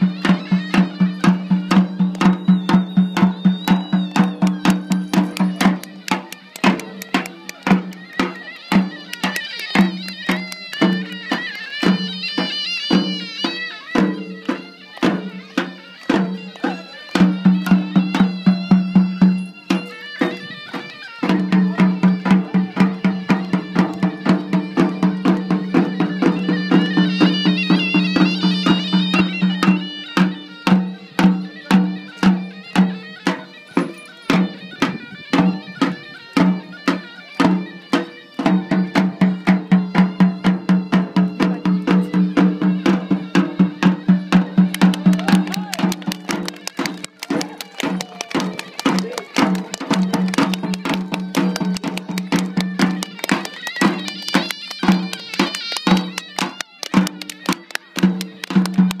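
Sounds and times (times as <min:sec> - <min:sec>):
quick steady drumbeat: 0:00.0 - 0:13.2, 0:38.4 - 0:59.0
droning reed wind instrument: 0:00.0 - 0:59.0.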